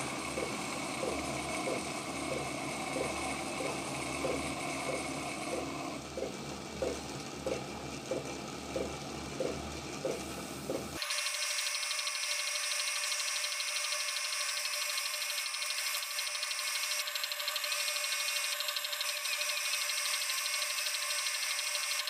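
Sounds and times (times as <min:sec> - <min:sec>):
wood lathe motor humming: 0:00.0 - 0:22.0.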